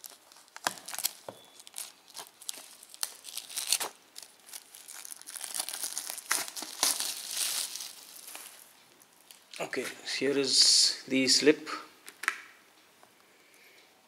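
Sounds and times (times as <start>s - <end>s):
plastic shrink-wrap crinkling: 0.0s - 9.6s.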